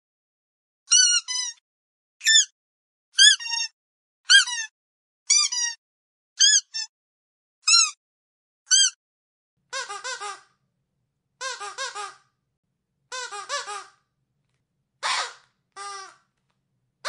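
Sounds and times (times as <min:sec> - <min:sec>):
squeaky dog toy squeaking: 0:00.9 - 0:01.6, 0:02.2 - 0:02.5, 0:03.2 - 0:04.7, 0:05.3 - 0:05.8, 0:06.4 - 0:06.9, 0:07.6 - 0:08.0, 0:08.7 - 0:09.0, 0:09.7 - 0:10.5, 0:11.4 - 0:12.3, 0:13.1 - 0:14.0, 0:15.0 - 0:16.2.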